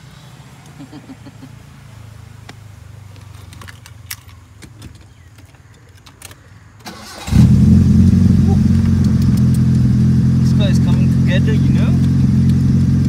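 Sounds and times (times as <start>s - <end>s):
light clicks and rattles: 3.1s - 6.9s.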